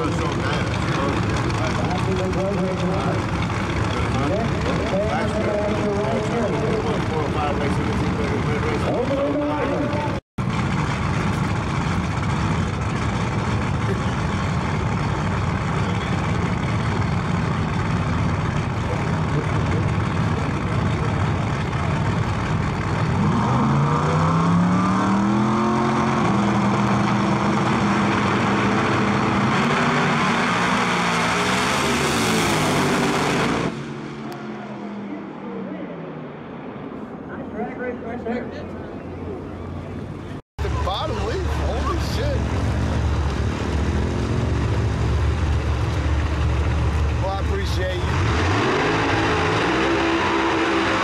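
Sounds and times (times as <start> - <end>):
drag car engines revving: 0.0 - 51.0
drag car launching full throttle: 40.7 - 51.0.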